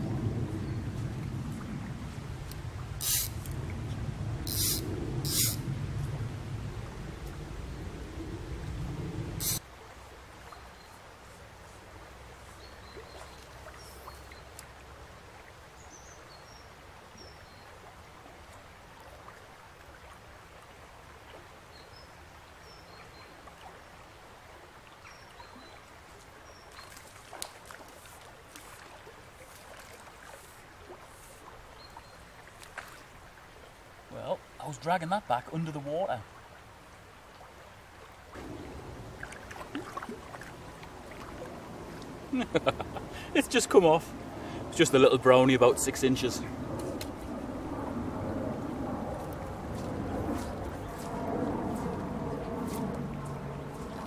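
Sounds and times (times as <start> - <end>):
river babbling over stones: 23.2 - 46.5.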